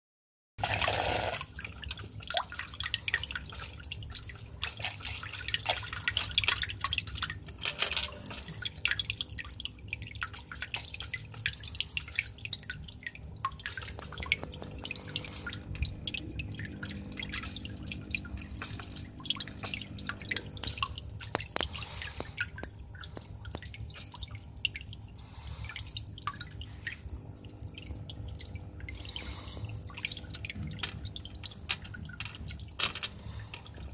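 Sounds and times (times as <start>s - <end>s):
water splashing and dripping: 0.6s - 33.9s.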